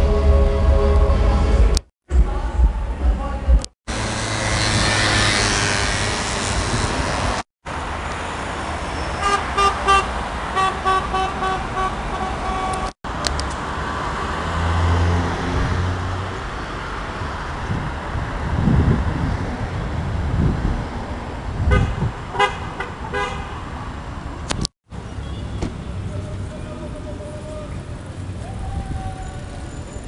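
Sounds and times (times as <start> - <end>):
city street traffic: 0.0 - 30.0
car horn short beeps: 9.2 - 12.9.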